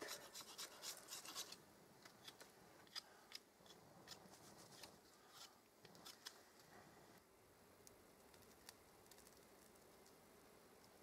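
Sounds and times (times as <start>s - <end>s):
twigs crackling in a stove fire: 7.8s - 10.2s.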